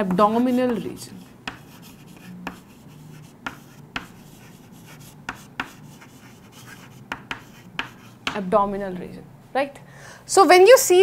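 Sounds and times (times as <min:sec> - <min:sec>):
chalk scratching: 0:00.0 - 0:08.4
chalk tapping on board: 0:00.0 - 0:08.4.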